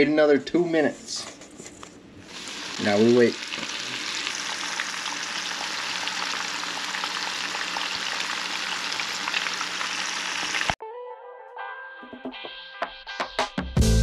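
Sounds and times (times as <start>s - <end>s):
fish frying in hot oil: 2.3s - 10.8s.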